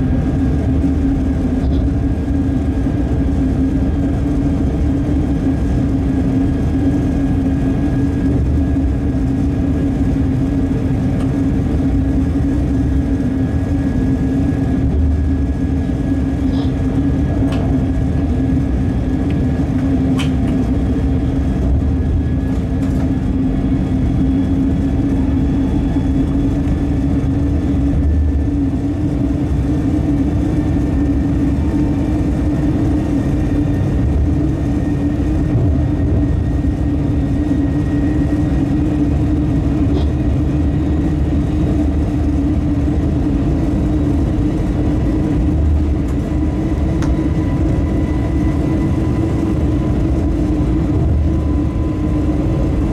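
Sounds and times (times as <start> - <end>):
locomotive hum: 0.0 - 52.9
wheels rumbling on rails: 0.0 - 52.9.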